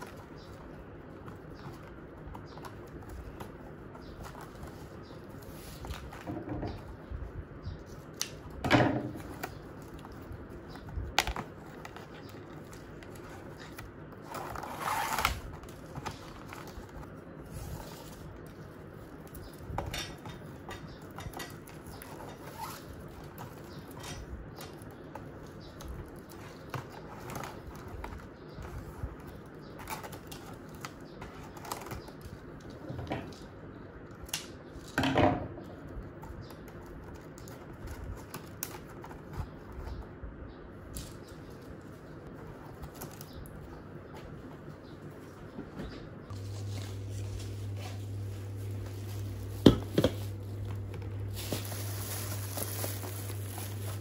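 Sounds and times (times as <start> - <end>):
plastic ribbon rustling and crinkling: 46.3 - 54.0.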